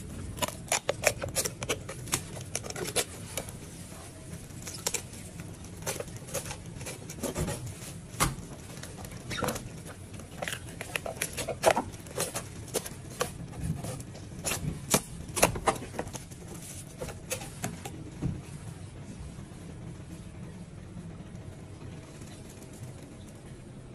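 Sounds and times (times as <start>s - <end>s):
steady low hum: 0.0s - 23.9s
knife scraping on bone: 0.4s - 3.5s.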